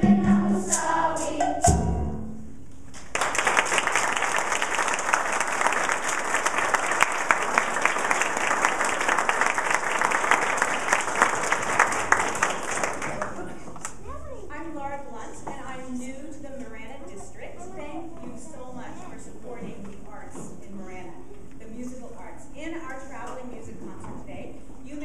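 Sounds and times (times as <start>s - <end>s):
children's choir singing: 0.0s - 2.1s
audience applause: 3.0s - 13.7s.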